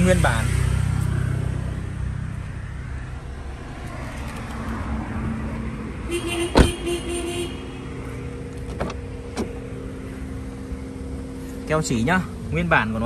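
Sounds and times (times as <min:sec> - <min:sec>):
car door shutting: 0:06.5 - 0:06.8, 0:08.5 - 0:09.6.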